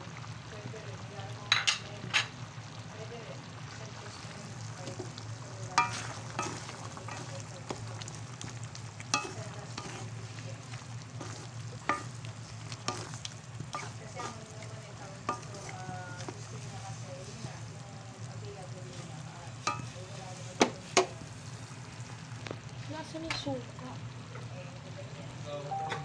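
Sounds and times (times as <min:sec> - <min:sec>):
sauce simmering and sizzling: 0:00.0 - 0:25.9
spatula scraping metal pan: 0:05.8 - 0:07.8, 0:09.2 - 0:10.4, 0:11.1 - 0:14.6, 0:15.2 - 0:15.8.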